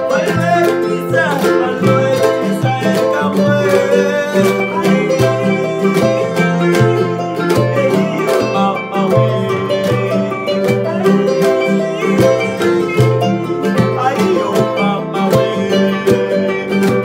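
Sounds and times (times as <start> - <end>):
harp being plucked: 0.0 - 17.0.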